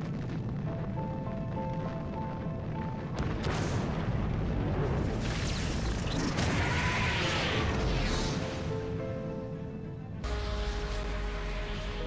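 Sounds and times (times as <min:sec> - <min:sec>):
rumbling blast with crackles: 0:00.0 - 0:09.0.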